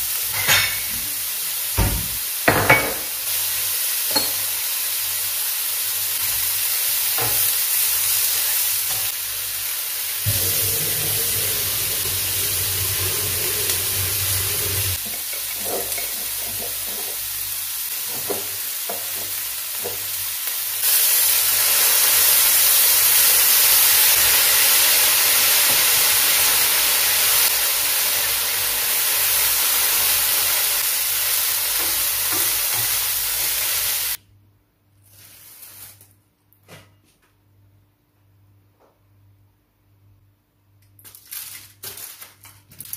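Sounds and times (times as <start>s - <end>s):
food sizzling in frying pan: 0.0s - 34.2s.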